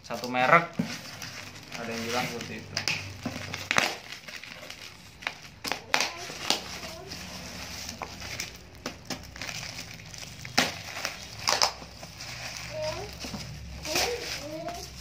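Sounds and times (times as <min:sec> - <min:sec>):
plastic bag crinkling and ripping: 0:00.0 - 0:15.0.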